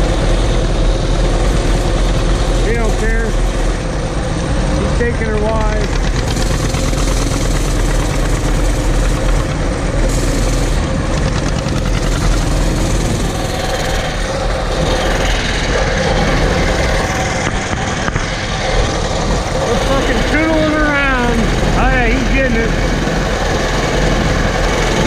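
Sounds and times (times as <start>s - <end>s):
distant tractors: 0.0s - 25.0s
small motorbike engine running: 0.0s - 25.0s.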